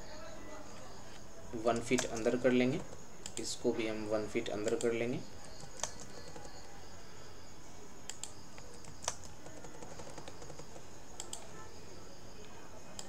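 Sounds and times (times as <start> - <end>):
steady low hiss: 0.0 - 9.4
keyboard keystrokes: 5.5 - 6.7, 8.1 - 11.5.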